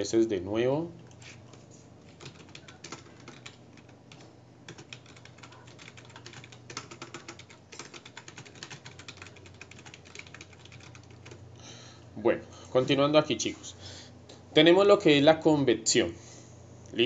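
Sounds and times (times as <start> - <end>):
keyboard typing: 1.0 - 11.4.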